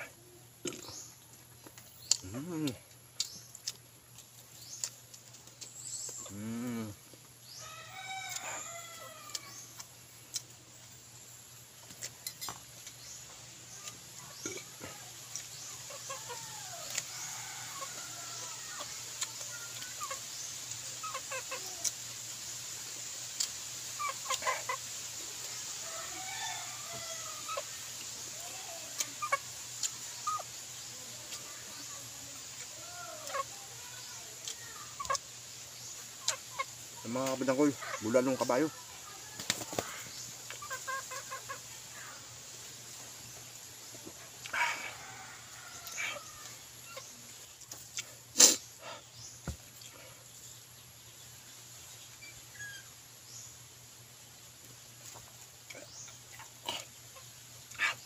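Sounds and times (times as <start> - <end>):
chickens clucking: 0.0 - 53.2, 53.8 - 58.0
lip-smacking and chewing clicks: 1.6 - 6.4, 9.3 - 10.5
rooster crowing: 7.6 - 9.7, 16.2 - 19.0, 25.8 - 27.8, 44.5 - 46.8.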